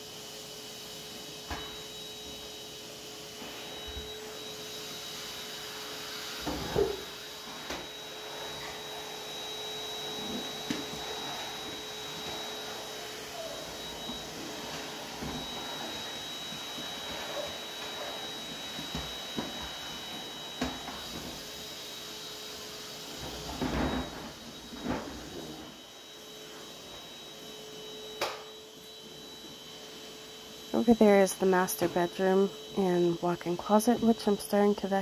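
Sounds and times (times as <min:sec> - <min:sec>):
vacuum cleaner whining: 0:00.0 - 0:35.0
vacuum tool knocking: 0:06.4 - 0:12.6, 0:13.6 - 0:21.4.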